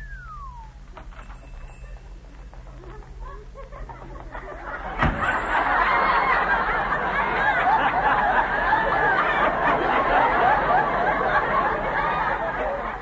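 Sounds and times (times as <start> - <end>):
audience laughing: 3.3 - 13.0
sharp thump: 5.0 - 5.4.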